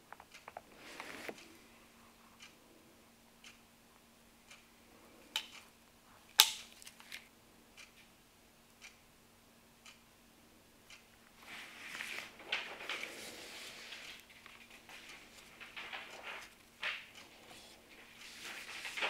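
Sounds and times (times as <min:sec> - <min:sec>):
light ticks: 0:08.7 - 0:09.0
cloth wiping plastic: 0:11.4 - 0:19.0.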